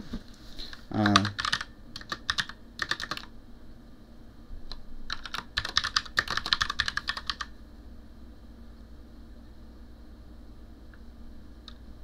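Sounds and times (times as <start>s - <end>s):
typing on computer keyboard: 1.0s - 3.3s, 5.1s - 7.5s.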